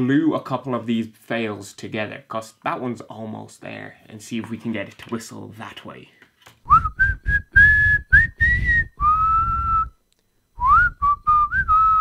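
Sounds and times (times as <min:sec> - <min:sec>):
breathy whistle notes: 0:06.7 - 0:10.0, 0:10.6 - 0:12.0.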